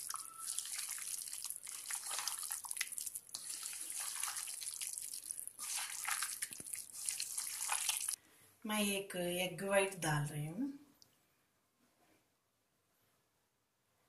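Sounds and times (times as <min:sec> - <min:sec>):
hand squelching wet chicken: 0:00.0 - 0:08.2.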